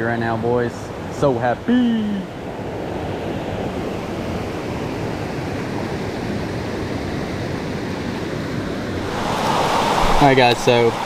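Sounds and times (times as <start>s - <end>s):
creek water rushing: 8.5s - 11.0s.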